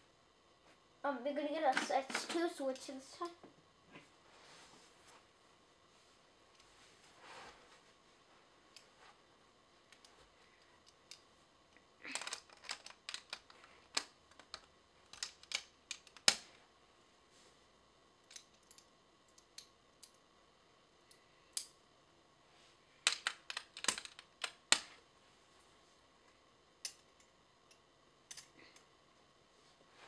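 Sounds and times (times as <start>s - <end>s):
plastic parts snapping and clicking: 12.1s - 16.5s, 23.1s - 24.9s.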